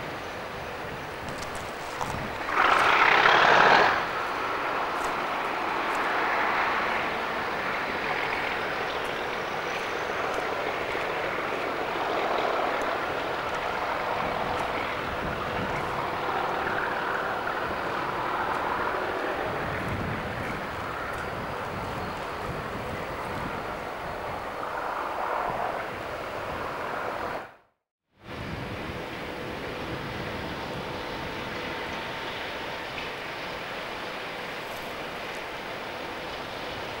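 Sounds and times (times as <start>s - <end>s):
loud rush of noise: 0.0s - 27.6s
diesel locomotive droning: 0.0s - 37.0s.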